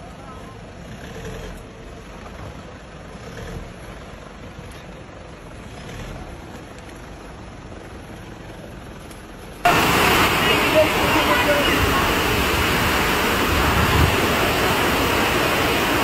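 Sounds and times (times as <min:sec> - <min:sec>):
car engine running: 0:00.0 - 0:16.0
river rushing over rocks: 0:09.7 - 0:16.0.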